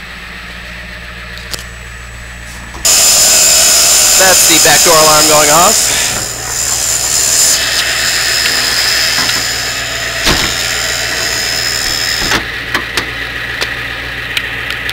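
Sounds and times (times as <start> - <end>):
diesel engine idling: 0.0 - 14.9
bus door alarm buzzing: 2.8 - 12.5.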